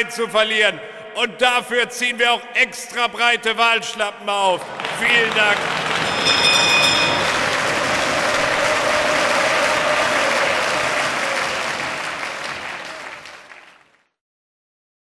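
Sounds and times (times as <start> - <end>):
crowd applauding: 4.6 - 14.1.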